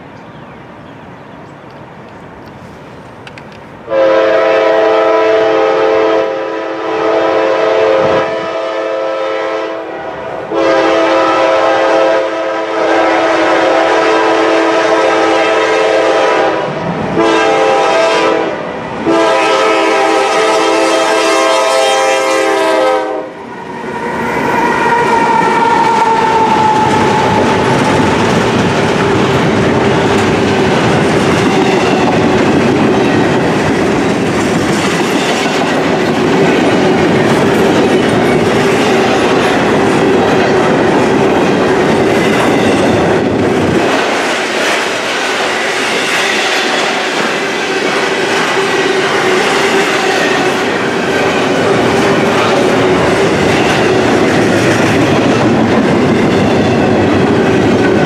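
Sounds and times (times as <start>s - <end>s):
train rumbling past: 0.0s - 58.0s
locomotive air horn chord: 3.9s - 23.4s.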